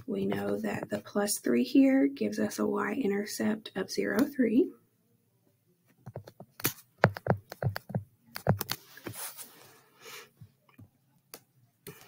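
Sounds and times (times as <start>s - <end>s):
stylus scratching on screen: 6.1s - 9.6s.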